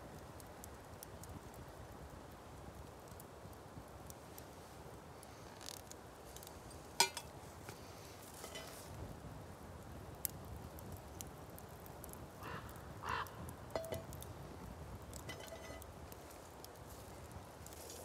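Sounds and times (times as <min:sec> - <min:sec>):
frying pan clinking on metal stove: 0:07.0 - 0:07.3, 0:08.4 - 0:08.8, 0:13.7 - 0:14.2, 0:15.2 - 0:15.8.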